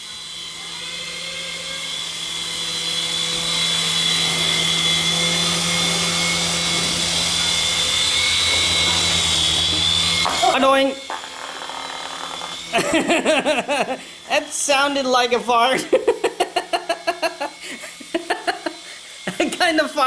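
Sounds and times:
toy helicopter rotors whining: 0.0s - 20.0s.

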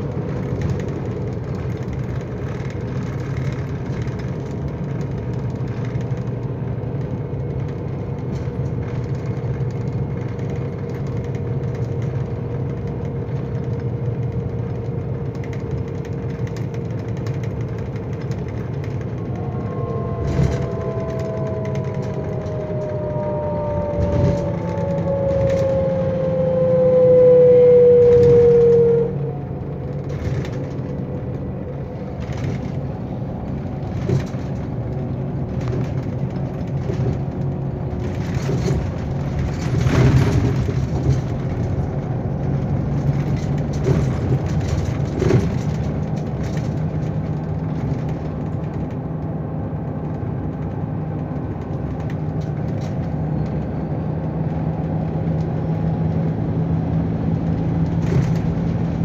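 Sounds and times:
bodywork rattles and clicks: 0.0s - 19.6s, 29.8s - 56.4s
diesel coach engine running: 0.0s - 59.0s.

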